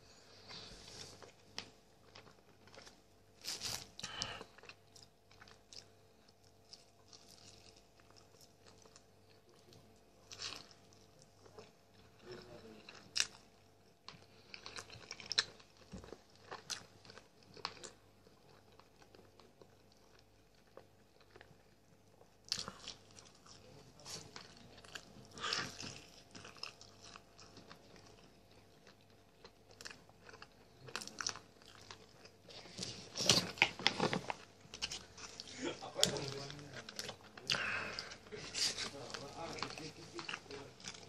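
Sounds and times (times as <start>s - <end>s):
chewing and biting chicken: 22.5s - 38.2s.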